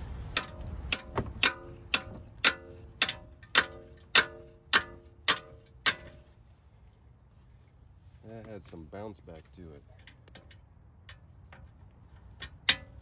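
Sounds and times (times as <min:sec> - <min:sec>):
hammer clanking on metal bar: 0:00.3 - 0:06.2.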